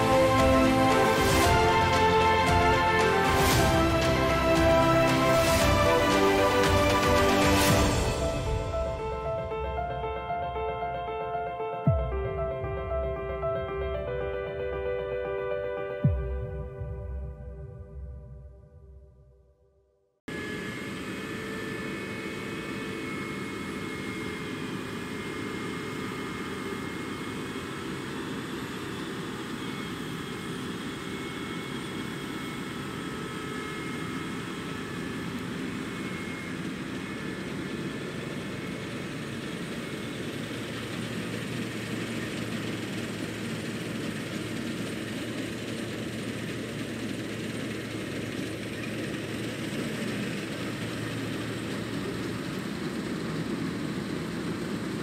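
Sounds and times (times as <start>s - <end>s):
combine harvester engine drone: 0.0s - 17.6s, 20.3s - 55.0s.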